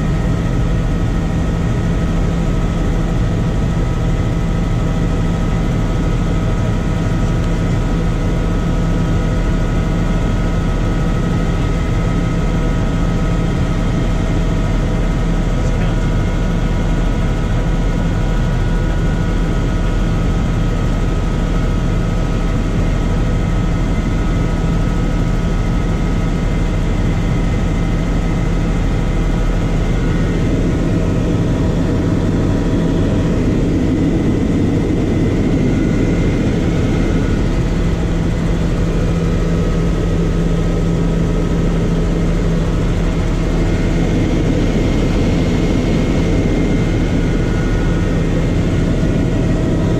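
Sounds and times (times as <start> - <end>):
helicopter cabin drone: 0.0 - 49.9.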